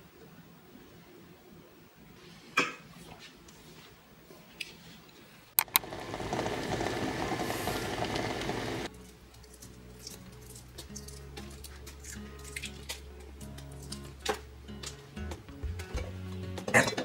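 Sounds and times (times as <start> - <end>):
sharp clicks: 5.6 - 5.9
water boiling in a pot: 5.6 - 8.9.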